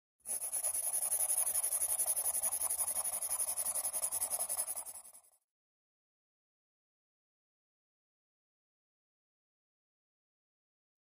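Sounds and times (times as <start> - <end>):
pencil scratching on paper: 0.2 - 5.4.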